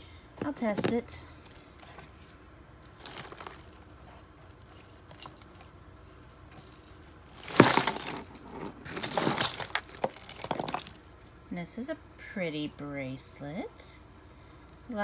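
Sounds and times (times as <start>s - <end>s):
jewelry clinking in cardboard box: 2.9s - 11.2s.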